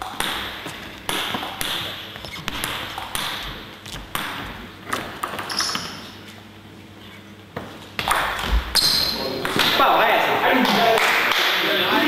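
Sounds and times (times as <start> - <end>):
table tennis ball bouncing: 0.0 - 6.1, 8.0 - 9.8.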